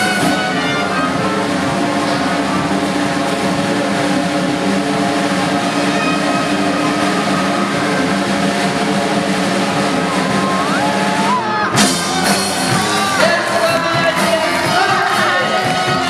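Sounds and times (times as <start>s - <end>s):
background music: 0.0s - 16.0s
person singing: 10.1s - 16.0s.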